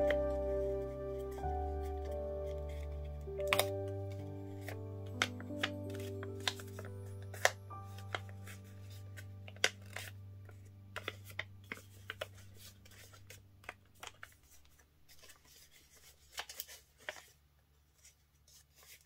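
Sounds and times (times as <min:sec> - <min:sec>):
paper rustling and crinkling: 0:00.0 - 0:19.0
sharp paper clicks: 0:04.6 - 0:08.6, 0:09.5 - 0:10.1, 0:11.0 - 0:17.4.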